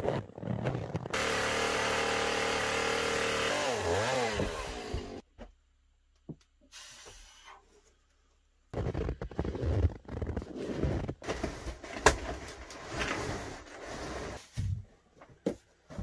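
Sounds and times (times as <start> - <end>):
chainsaw cutting wood: 1.1 - 5.2.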